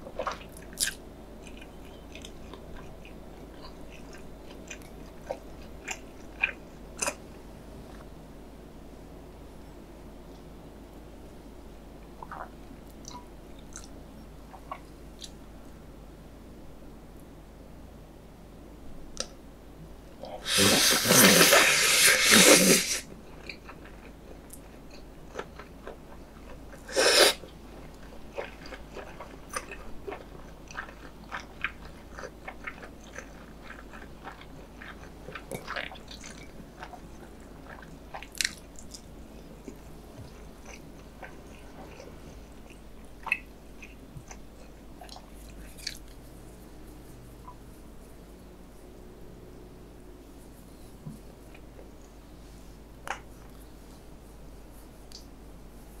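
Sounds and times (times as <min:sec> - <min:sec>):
wet chewing clicks: 0:12.2 - 0:15.4, 0:23.4 - 0:46.2
noodle slurping: 0:20.4 - 0:23.0, 0:26.9 - 0:27.4.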